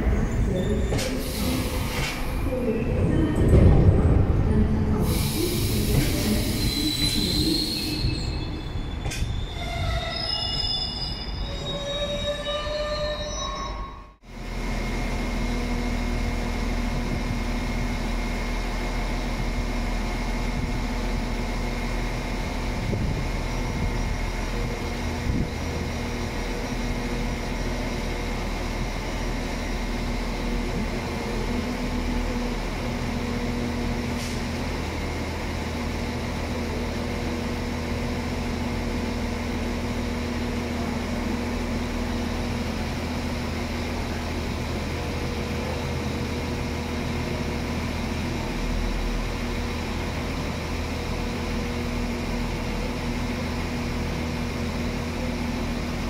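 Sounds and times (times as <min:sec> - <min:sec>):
diesel locomotive engine humming: 0:00.0 - 0:56.0.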